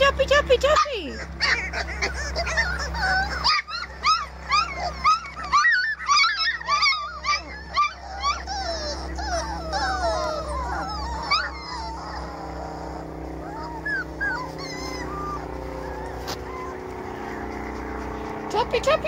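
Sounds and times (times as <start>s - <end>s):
puppies whining and yelping: 0.0s - 19.0s.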